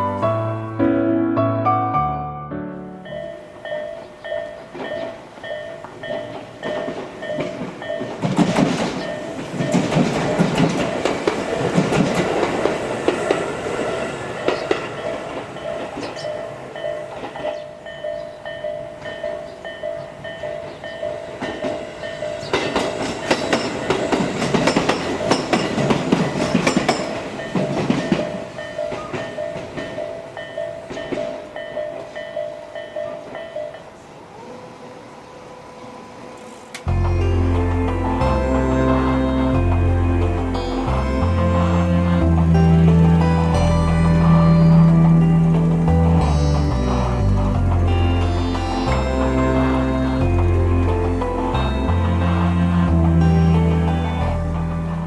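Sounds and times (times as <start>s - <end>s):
level-crossing warning bell: 3.0s - 55.0s
train wheels clattering: 3.6s - 33.9s.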